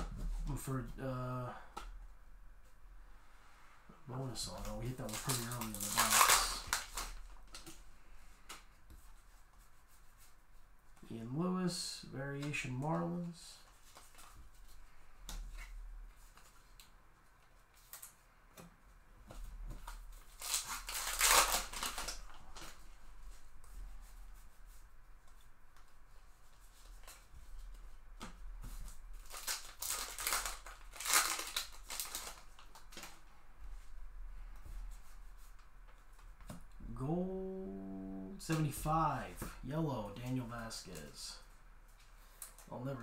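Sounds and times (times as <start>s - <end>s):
cards rustling together: 4.2s - 10.3s, 12.4s - 18.2s, 19.3s - 33.9s.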